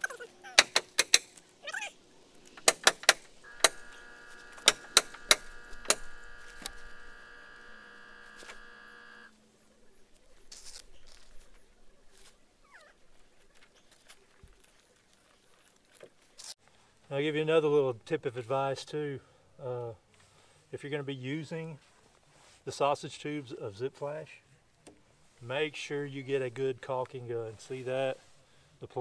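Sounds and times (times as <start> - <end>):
steady pitched hum: 1.9 - 9.3
caulking gun trigger clicking: 2.6 - 9.2.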